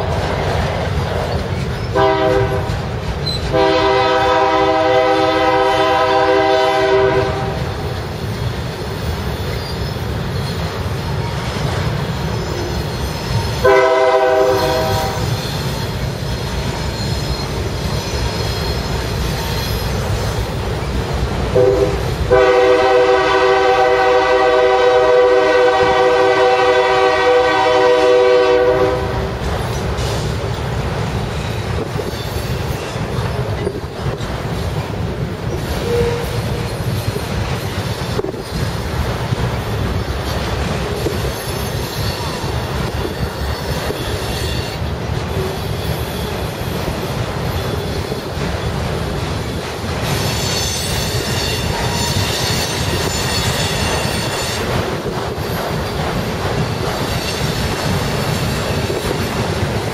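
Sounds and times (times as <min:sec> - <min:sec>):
freight train rumbling past: 0:00.0 - 0:59.9
train horn blasts: 0:01.9 - 0:02.8, 0:03.5 - 0:07.8, 0:13.6 - 0:15.9, 0:21.5 - 0:29.4, 0:35.7 - 0:36.5, 0:50.3 - 0:54.7.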